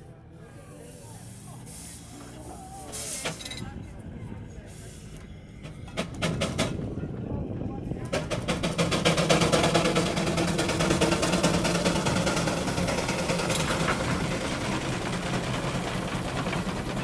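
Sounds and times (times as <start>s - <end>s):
steam engine beating rhythmically: 4.6s - 17.0s.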